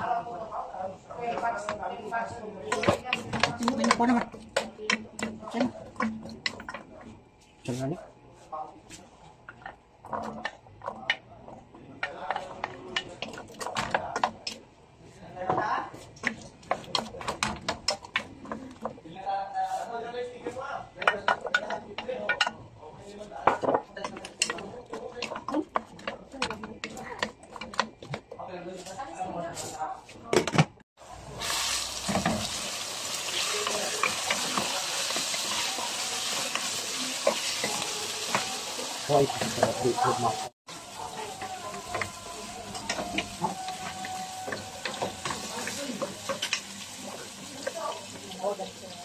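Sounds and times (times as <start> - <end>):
wooden spoon scraping metal pot: 21.0 - 29.0, 31.5 - 40.4
vegetables sizzling in oil: 31.0 - 49.0
wooden spatula scraping a pan: 31.4 - 48.4.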